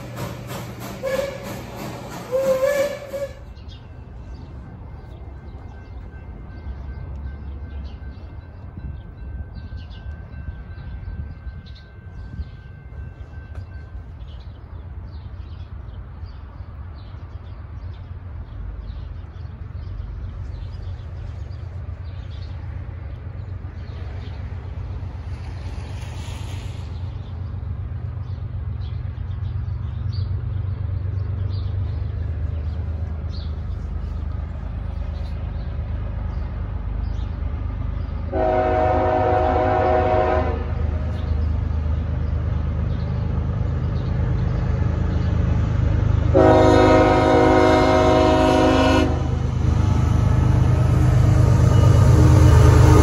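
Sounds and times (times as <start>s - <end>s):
diesel locomotive engine rumble: 0.0s - 53.0s
train air horn: 1.0s - 3.6s, 38.3s - 40.8s, 46.3s - 49.4s, 50.8s - 53.0s.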